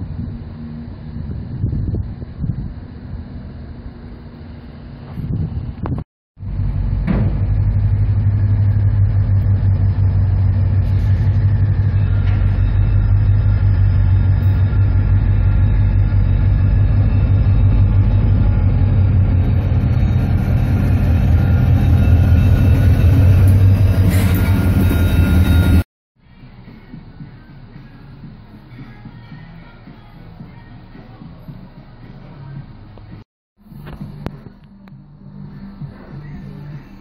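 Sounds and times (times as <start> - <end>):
diesel locomotive engine rumble: 0.0 - 37.0
wheel and rail hissing: 19.4 - 25.8.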